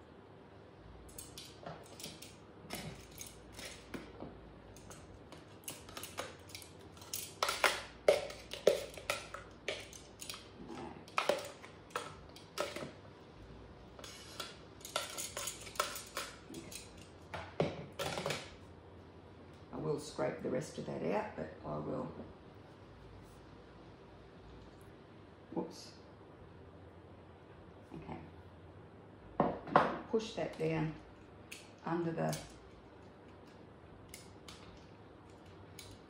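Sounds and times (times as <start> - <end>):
metal tongs clicking on plastic: 4.8 - 10.5.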